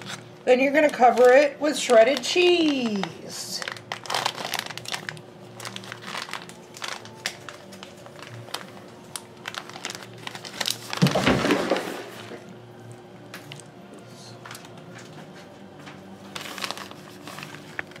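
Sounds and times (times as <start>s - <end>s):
plastic bag crinkling: 0.0s - 12.5s, 16.2s - 18.0s.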